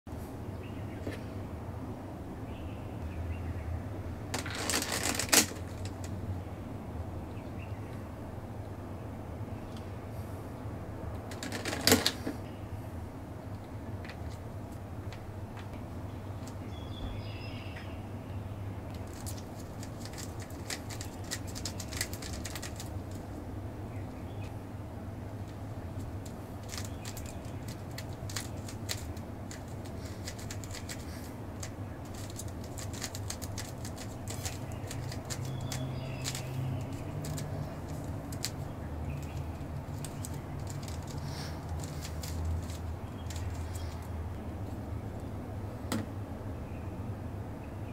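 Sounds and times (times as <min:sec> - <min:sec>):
puzzle cube layers clicking: 0:26.6 - 0:38.6.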